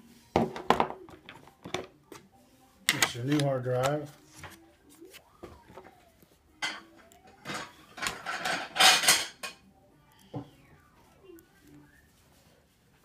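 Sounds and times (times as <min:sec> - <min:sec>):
metallic rattling and scraping: 0:07.5 - 0:09.6.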